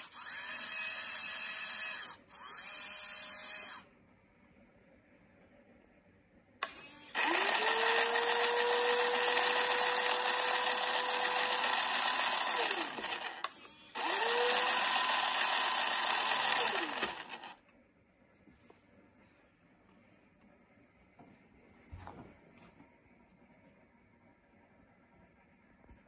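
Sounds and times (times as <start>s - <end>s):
small electric motor whirring: 0.0s - 3.9s, 6.6s - 17.6s.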